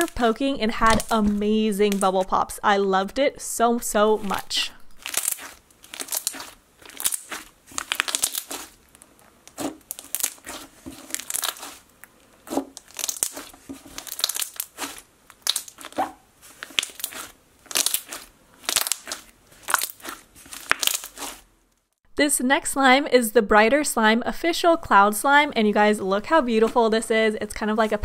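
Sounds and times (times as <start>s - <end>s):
slime squelching and popping: 5.0s - 21.4s.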